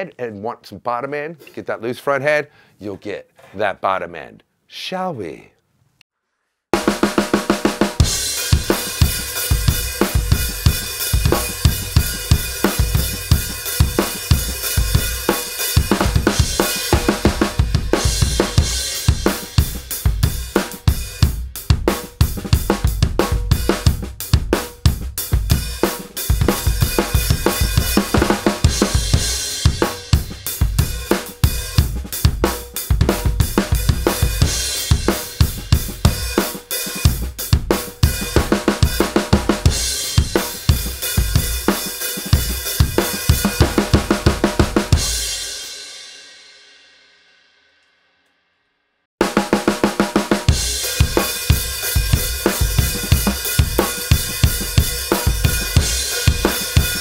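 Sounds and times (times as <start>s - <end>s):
snare drum: 6.8s - 21.0s, 25.6s - 45.5s, 49.2s - 57.0s
drum kit groove: 6.8s - 46.3s, 49.2s - 57.0s
bass drum: 7.9s - 45.4s, 50.2s - 57.0s
hi-hat and cymbals: 7.9s - 45.7s, 50.5s - 57.0s.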